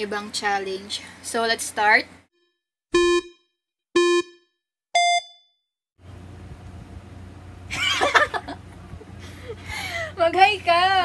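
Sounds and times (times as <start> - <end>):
countdown beeps: 2.9 - 5.5
low room hum: 6.0 - 11.0.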